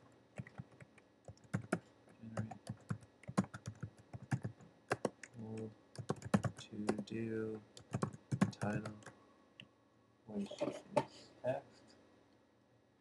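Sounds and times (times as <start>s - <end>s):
keyboard typing: 0.4s - 7.1s, 7.7s - 9.2s.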